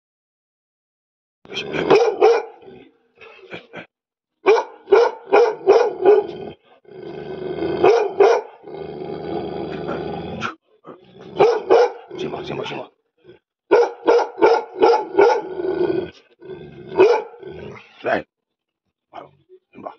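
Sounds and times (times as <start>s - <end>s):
dog barking deeply: 1.5s - 2.8s, 4.4s - 12.9s, 13.7s - 17.8s
dog growling: 1.5s - 2.9s, 4.8s - 18.3s.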